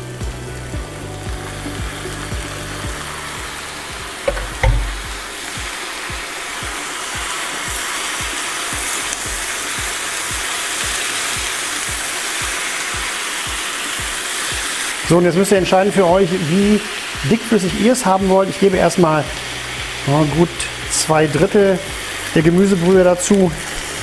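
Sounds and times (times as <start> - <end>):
sauce sizzling in a frying pan: 0.0 - 24.0
sharp knock: 4.2 - 5.7.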